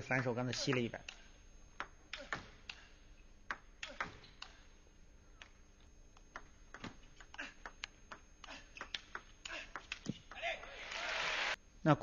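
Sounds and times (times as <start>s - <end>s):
table tennis ball clicking: 3.4s - 4.5s, 5.4s - 10.5s.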